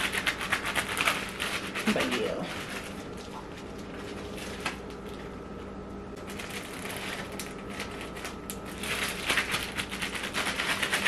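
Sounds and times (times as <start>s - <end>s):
plastic bags crinkling: 6.2s - 11.0s.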